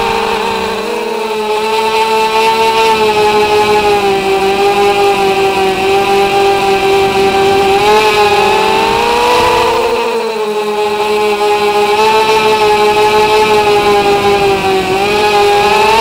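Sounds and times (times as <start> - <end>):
drone motors high whine: 0.0 - 16.0.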